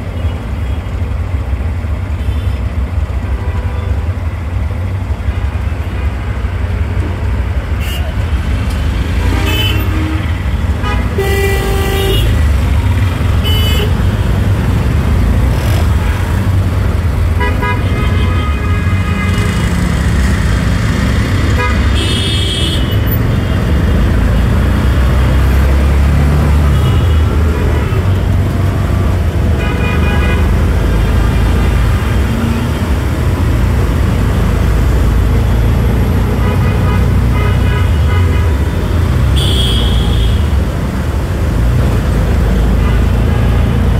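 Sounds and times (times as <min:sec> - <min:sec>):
engine and road rumble: 0:00.0 - 0:43.9
vehicle horns honking: 0:07.8 - 0:08.2, 0:09.1 - 0:12.5, 0:13.2 - 0:14.3, 0:17.4 - 0:19.7, 0:21.5 - 0:23.6, 0:26.5 - 0:28.2, 0:29.6 - 0:32.8, 0:35.2 - 0:40.6.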